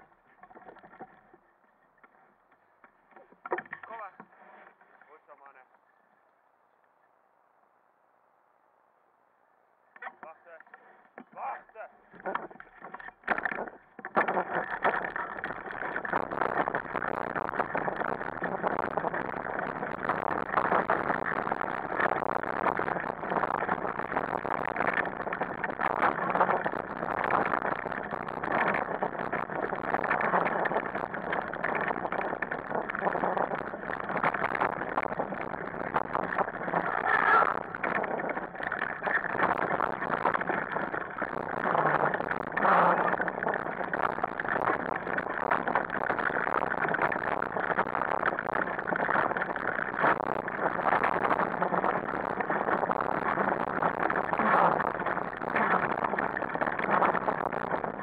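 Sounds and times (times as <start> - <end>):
wheeled rig rattling over dirt trail: 0.0 - 6.0, 10.0 - 58.0.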